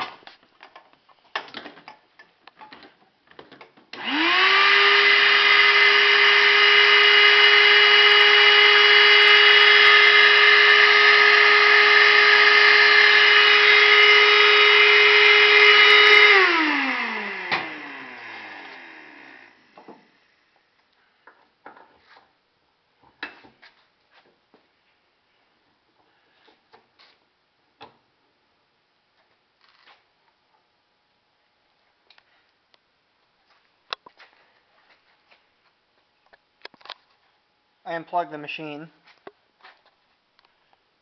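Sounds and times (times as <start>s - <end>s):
shop vacuum motor whining: 4.0s - 20.6s
vacuum sucking metal chips: 4.8s - 19.6s.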